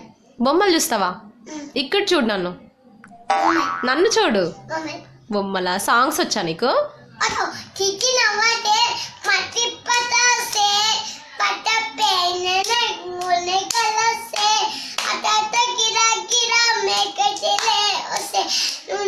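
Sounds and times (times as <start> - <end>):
girl singing: 7.2 - 19.0.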